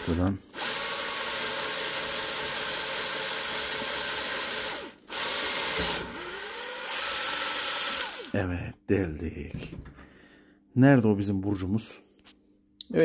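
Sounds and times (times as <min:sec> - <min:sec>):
electric drill boring: 0:00.0 - 0:08.3.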